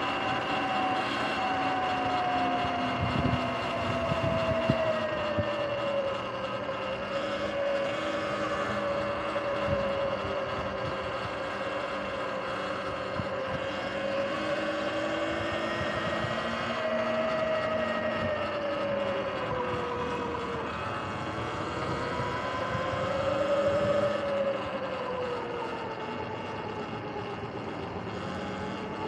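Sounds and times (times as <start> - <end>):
tyre and wind noise: 0.0 - 7.8
electric motor whine: 0.0 - 29.0.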